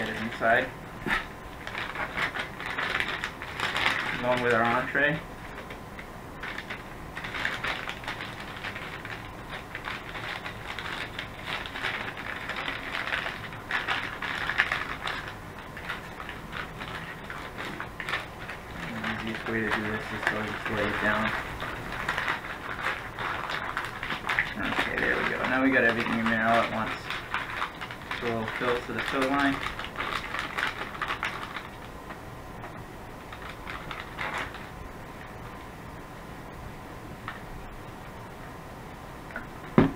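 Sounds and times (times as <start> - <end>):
plastic pouches crinkling: 0.0 - 5.8, 6.4 - 32.2, 33.2 - 34.8
water pouring into bag: 6.5 - 31.8.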